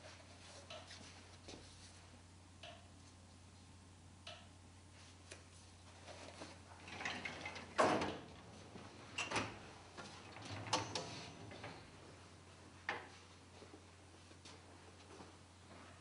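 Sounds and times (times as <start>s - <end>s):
metal drawers sliding: 9.2s - 12.0s.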